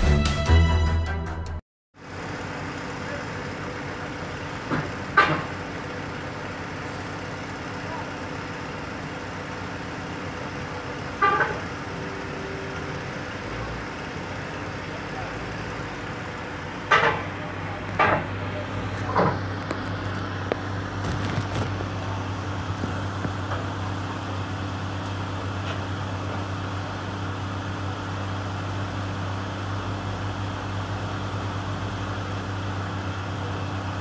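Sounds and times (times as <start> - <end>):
diesel engine running at low speed: 2.0 - 34.0.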